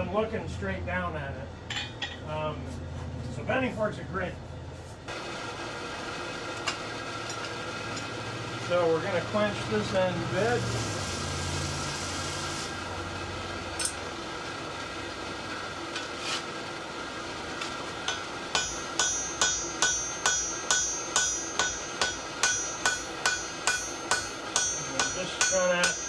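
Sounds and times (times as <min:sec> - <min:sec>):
steady hum: 0:00.0 - 0:26.0
hammer striking metal on anvil: 0:01.7 - 0:02.3, 0:13.8 - 0:14.0, 0:17.6 - 0:26.0.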